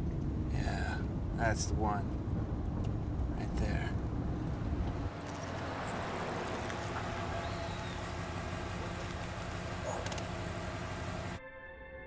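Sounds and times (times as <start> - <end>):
minivan engine idling: 0.0 - 11.4
street hum: 0.0 - 11.4.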